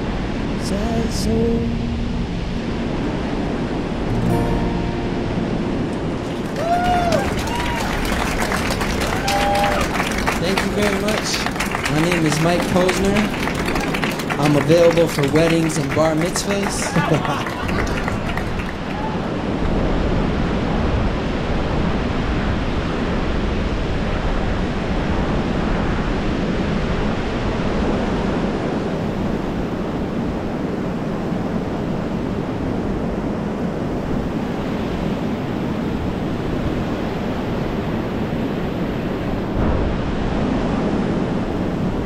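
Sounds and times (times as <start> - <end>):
heavy low rumble: 0.0 - 9.3
rushing water: 0.0 - 32.6
rushing wind: 0.0 - 42.0
wind buffeting microphone: 0.0 - 42.0.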